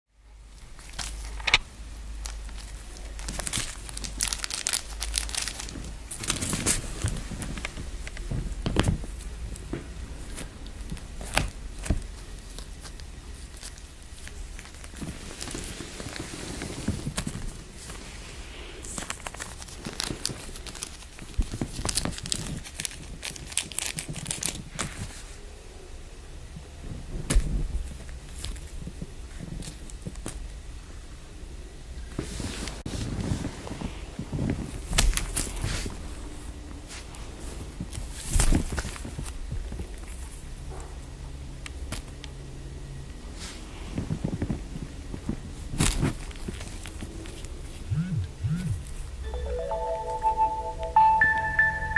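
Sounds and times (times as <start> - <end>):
clothing label crinkling and rustling: 2.2 - 18.0, 18.8 - 25.1.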